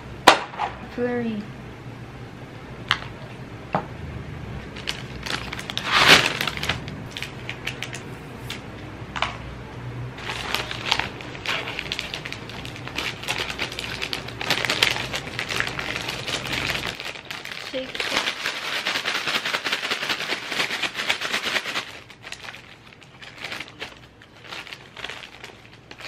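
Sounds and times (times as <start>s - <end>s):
paper bag crinkling and rustling: 4.6s - 8.6s, 10.2s - 26.0s.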